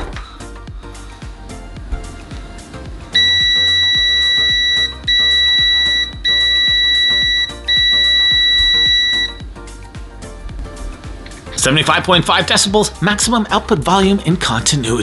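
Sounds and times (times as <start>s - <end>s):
multimeter continuity beep: 3.2s - 9.4s.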